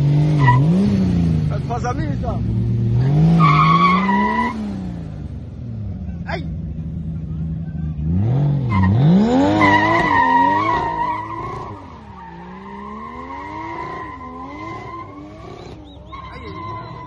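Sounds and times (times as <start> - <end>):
car engine revving hard: 0.0 - 1.7, 2.4 - 5.2, 8.0 - 17.0
tyre squeal: 8.7 - 17.0.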